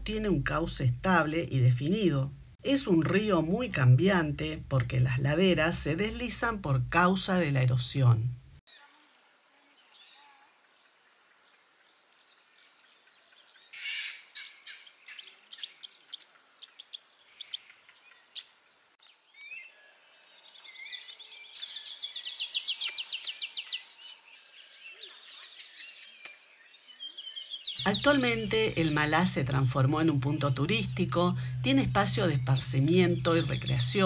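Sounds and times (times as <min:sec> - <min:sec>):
wild birds chirping: 0:08.7 - 0:34.0.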